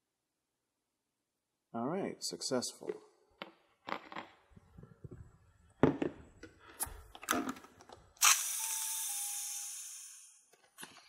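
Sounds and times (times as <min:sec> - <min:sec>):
air hissing into jar: 0:08.2 - 0:10.3.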